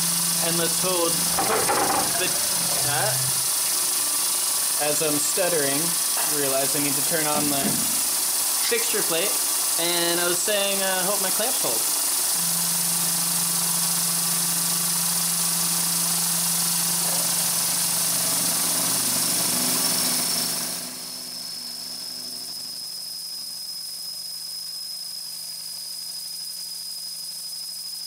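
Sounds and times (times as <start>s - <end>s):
low hum: 0.0s - 3.7s
mill drilling aluminium: 0.0s - 27.0s
thin high whine: 0.0s - 28.0s
compressed air hiss: 0.4s - 12.4s.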